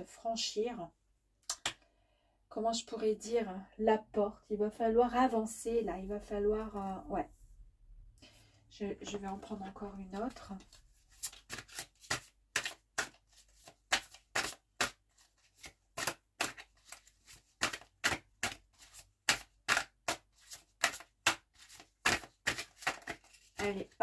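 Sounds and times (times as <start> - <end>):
cards being shuffled: 9.3 - 24.0.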